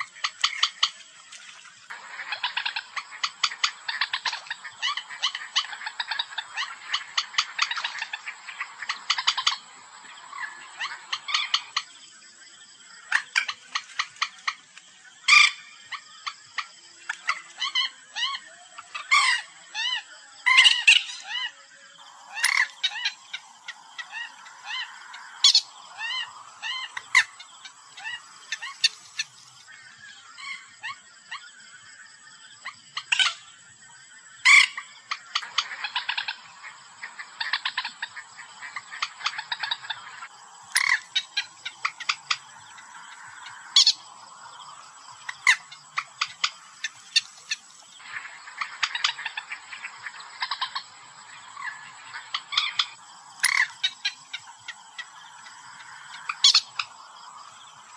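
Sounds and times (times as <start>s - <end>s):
moorhen croaking calls: 0.0s - 1.1s, 1.8s - 31.5s, 34.3s - 57.9s
fast ticking clucks: 1.9s - 11.9s, 22.0s - 29.6s, 34.7s - 50.9s
moorhen sharp single calls: 22.1s - 29.6s, 34.5s - 50.8s, 51.6s - 57.9s.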